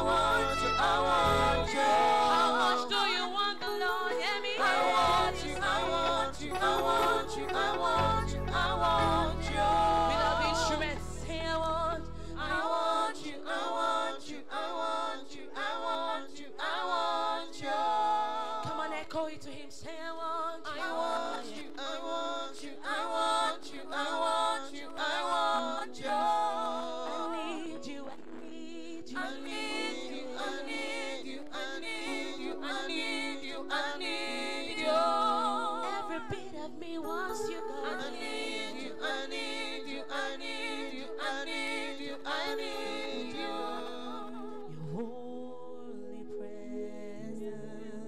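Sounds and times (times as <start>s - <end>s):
sustained chord: 0.0s - 12.9s
woman singing into microphone: 0.0s - 14.3s, 18.5s - 45.0s.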